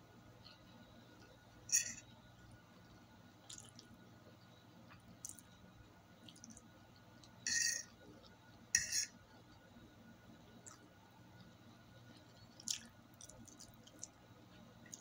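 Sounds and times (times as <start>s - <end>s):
person chewing: 3.5s - 3.9s, 5.2s - 5.4s, 12.1s - 14.2s.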